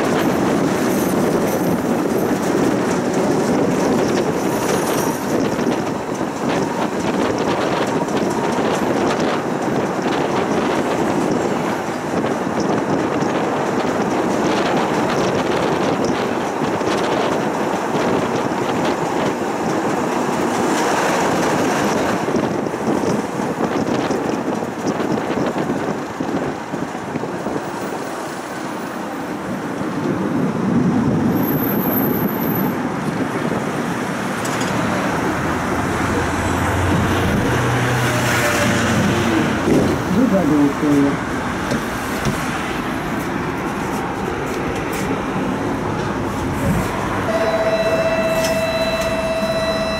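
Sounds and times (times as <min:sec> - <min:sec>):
rail joint clicks: 0:00.0 - 0:30.2, 0:34.3 - 0:36.3, 0:41.5 - 0:49.8
tram passing by: 0:00.0 - 0:49.9
tram wheels rumbling on track: 0:00.0 - 0:49.9.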